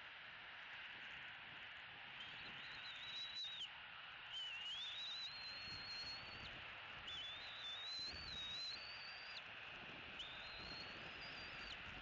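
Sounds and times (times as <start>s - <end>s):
eaglet whistling begging calls: 7.1s - 9.4s, 10.2s - 11.8s.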